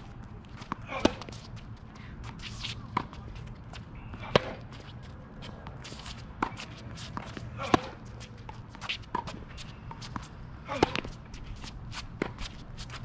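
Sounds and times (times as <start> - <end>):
footsteps and shoe scuffs: 0.0 - 7.5
tennis ball struck by rackets: 0.6 - 1.4, 4.2 - 4.6, 5.6 - 11.2, 12.2 - 12.4.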